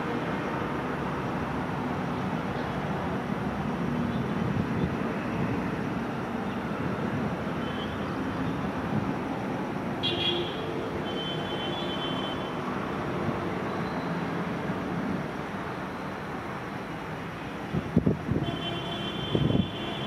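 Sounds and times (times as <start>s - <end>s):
low rumble of traffic: 0.0s - 20.0s
thin steady horn-like tone: 7.5s - 8.6s, 10.0s - 12.6s, 18.4s - 20.0s.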